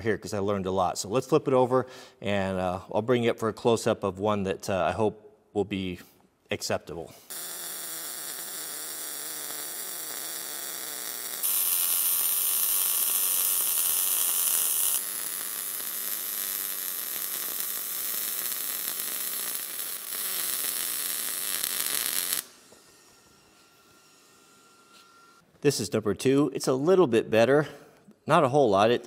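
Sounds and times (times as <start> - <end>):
welding arc crackling hiss: 7.3 - 25.1.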